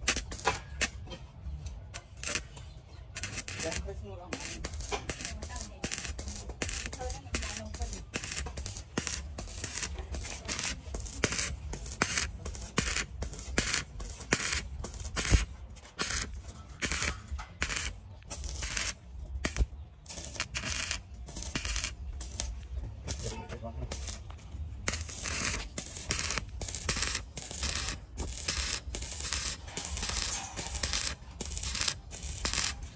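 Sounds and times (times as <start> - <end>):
hand tool rasping strokes: 24.9 - 32.9.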